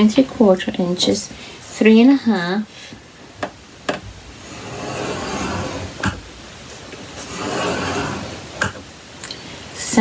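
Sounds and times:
stylus scraping on paper: 0:04.4 - 0:06.2, 0:07.2 - 0:08.4.

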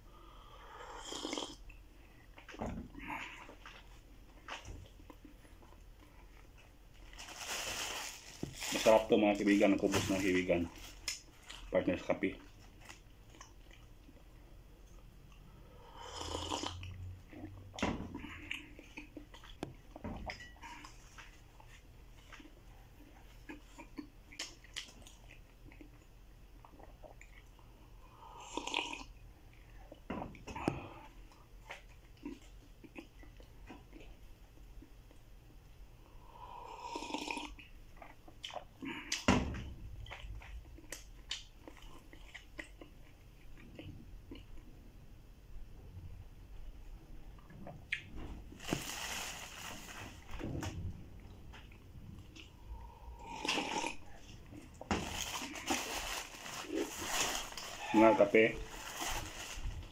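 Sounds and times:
slurping hot coffee: 0:00.7 - 0:01.6, 0:15.9 - 0:16.8, 0:28.3 - 0:29.1, 0:36.5 - 0:37.5, 0:52.8 - 0:54.2
chewing bread: 0:08.7 - 0:35.6, 0:36.8 - 0:39.3, 0:39.9 - 0:44.9.

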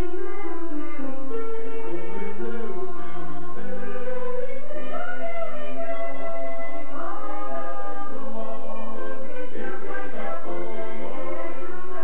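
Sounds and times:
mixed choir singing in harmony: 0:02.4 - 0:12.0.

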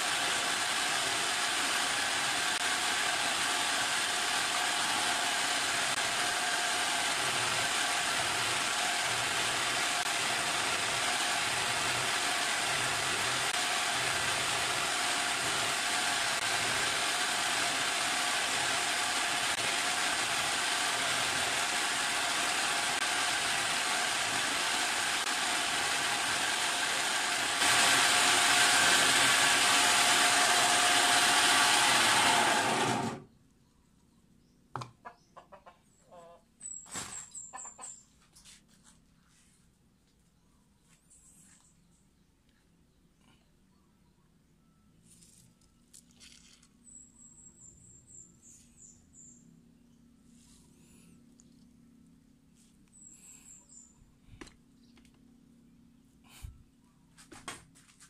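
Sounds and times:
electric coconut grater whirring: 0:00.0 - 0:33.3.

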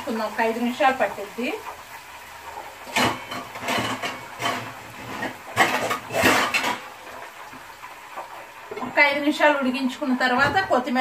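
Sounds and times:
metal kitchenware clattering: 0:02.9 - 0:06.9.

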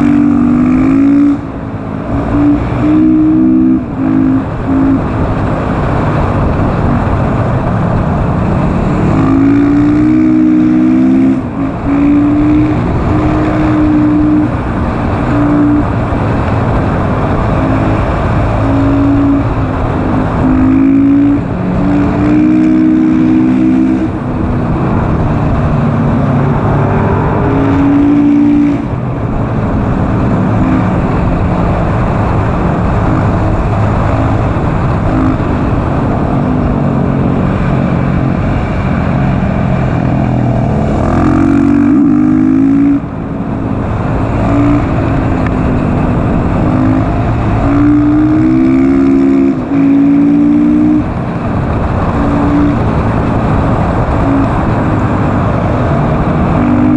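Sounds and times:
motorcycle engine accelerating hard: 0:00.0 - 0:56.9
wind noise: 0:00.0 - 0:56.9.

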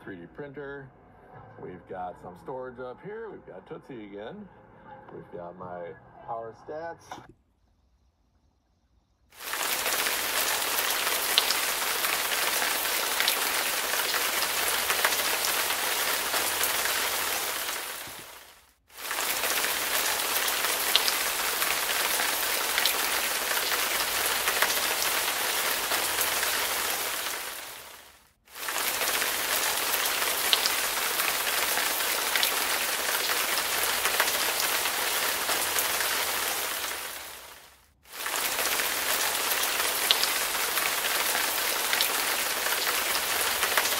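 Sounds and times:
heavy rain on hard surface: 0:09.3 - 0:43.9
raindrop ticks: 0:09.4 - 0:18.4, 0:19.0 - 0:27.5, 0:28.6 - 0:36.9, 0:38.2 - 0:43.9.

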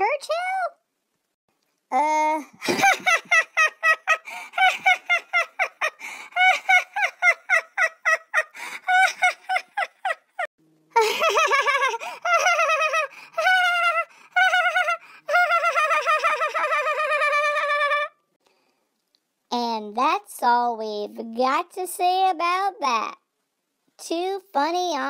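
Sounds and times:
high-pitched cackling laughter: 0:02.4 - 0:18.2.

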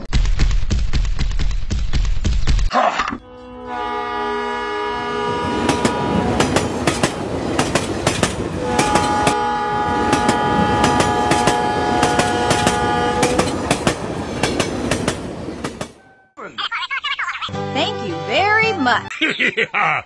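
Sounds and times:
multi-note train horn: 0:03.2 - 0:06.9, 0:08.5 - 0:13.6.

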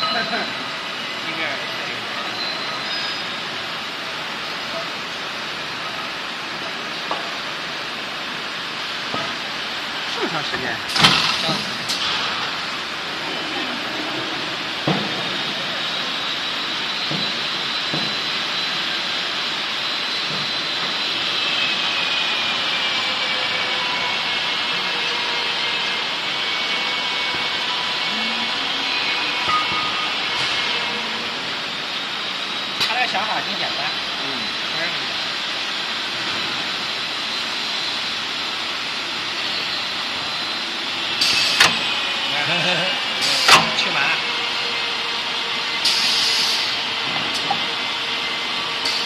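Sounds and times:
welding machine noise: 0:00.0 - 0:49.0
welding machine hissing: 0:34.3 - 0:49.0
pneumatic air hiss: 0:40.3 - 0:41.9, 0:43.2 - 0:43.8, 0:45.6 - 0:47.6, 0:48.8 - 0:49.0.

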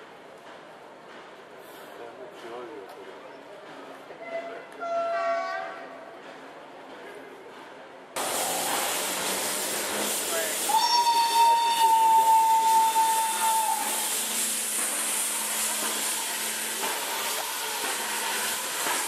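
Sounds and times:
steam locomotive whistle: 0:04.2 - 0:05.9, 0:10.6 - 0:14.5
venting steam hiss: 0:08.2 - 0:19.0.

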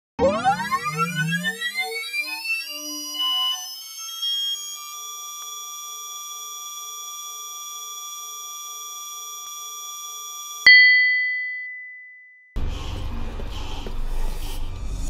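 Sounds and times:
synthetic buzzing tone: 0:00.2 - 0:04.7
loud chime: 0:10.7 - 0:12.4.

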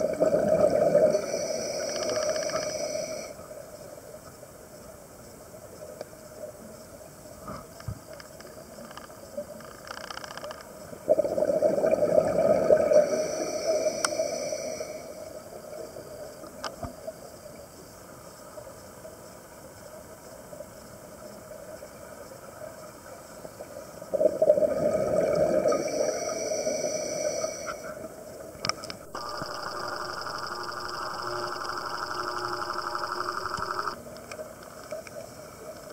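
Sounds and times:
bubbling exhalations underwater: 0:00.0 - 0:01.2, 0:11.1 - 0:13.0, 0:24.1 - 0:26.0
regulator hiss: 0:00.0 - 0:03.7, 0:12.5 - 0:18.4, 0:25.1 - 0:34.0
faint whine: 0:00.0 - 0:35.9.

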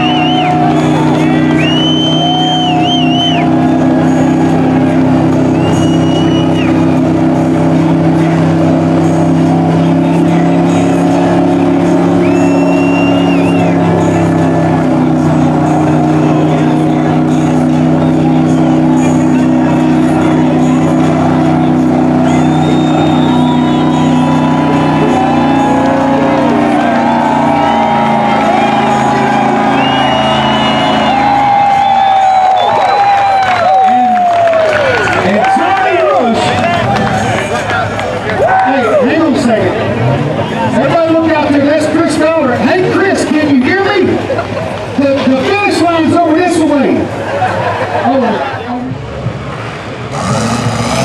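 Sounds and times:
high warbling whistle: 0:00.0 - 0:03.7, 0:05.5 - 0:06.9, 0:12.2 - 0:14.0, 0:22.0 - 0:26.3, 0:27.0 - 0:33.3
buggy engine at high revs: 0:00.0 - 0:33.2, 0:39.0 - 0:51.0.

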